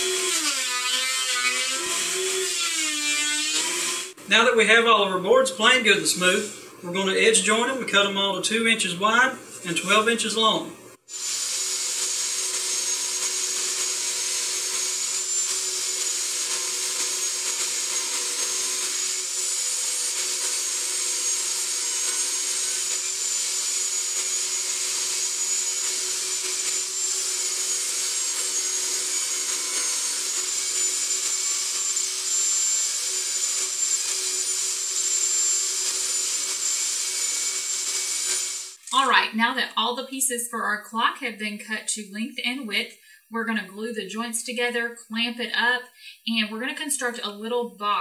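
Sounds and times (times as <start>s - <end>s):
table saw cutting wood: 0.0s - 4.6s, 5.5s - 6.8s, 9.6s - 39.2s.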